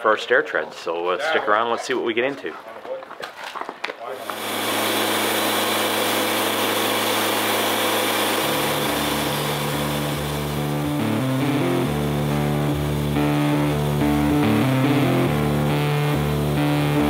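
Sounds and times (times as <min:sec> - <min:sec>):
sustained droning chord: 0:04.3 - 0:17.0
guitar and bass line: 0:05.2 - 0:17.0.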